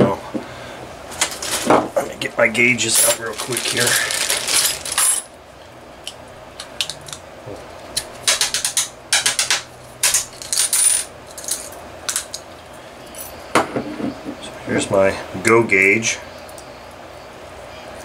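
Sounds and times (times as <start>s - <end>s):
small metal tools clinking: 2.9s - 5.3s, 8.3s - 12.4s.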